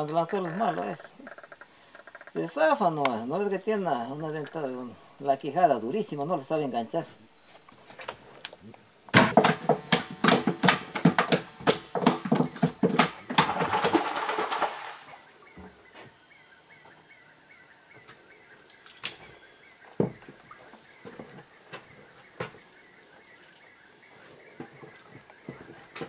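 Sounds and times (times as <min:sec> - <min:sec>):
high-pitched insect chorus: 0:00.0 - 0:26.0
fish flapping on wooden boards: 0:09.1 - 0:15.1.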